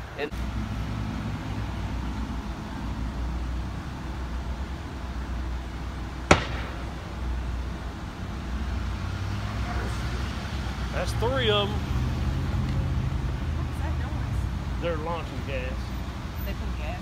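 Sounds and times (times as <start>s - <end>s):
tear gas launcher bang: 6.3s - 7.2s.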